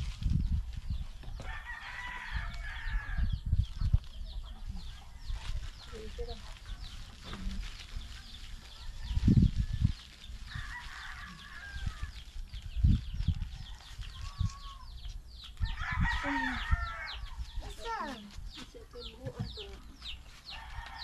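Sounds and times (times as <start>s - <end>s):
rooster crowing: 1.4s - 3.2s, 10.5s - 12.2s, 15.7s - 17.4s, 20.5s - 21.0s.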